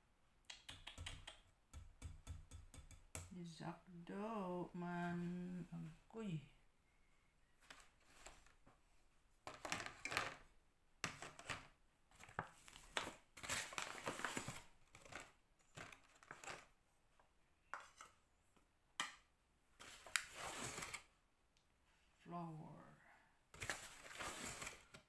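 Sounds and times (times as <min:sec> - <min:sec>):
flour bag crinkling: 0:12.2 - 0:16.7.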